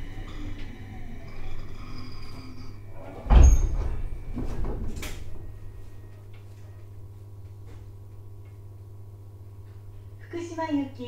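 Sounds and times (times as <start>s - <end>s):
train equipment humming: 0.0s - 8.6s
train doors sliding open: 3.0s - 5.4s.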